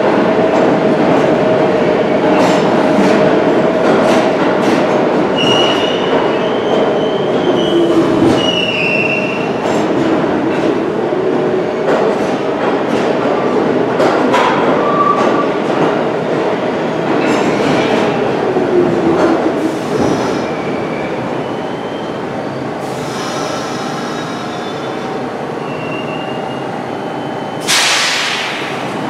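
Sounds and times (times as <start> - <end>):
train wheels squealing on rails: 5.3 - 9.8, 19.6 - 29.0
loud air hiss: 19.6 - 20.5, 22.8 - 24.9, 27.6 - 29.0.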